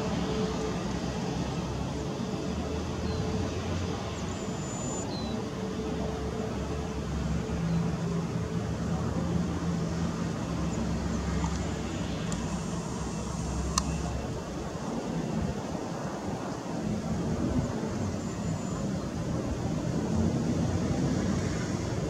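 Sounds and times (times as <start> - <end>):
jet engines rumbling at idle: 0.0 - 22.0.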